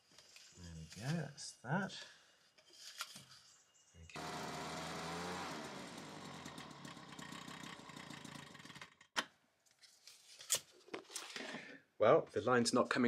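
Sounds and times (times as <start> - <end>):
leaf blower running: 4.2 - 9.0.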